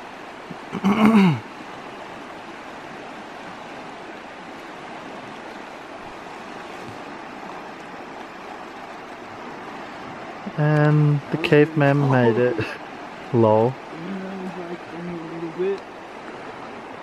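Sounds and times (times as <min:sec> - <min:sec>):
river rushing over rocks: 0:00.0 - 0:17.0.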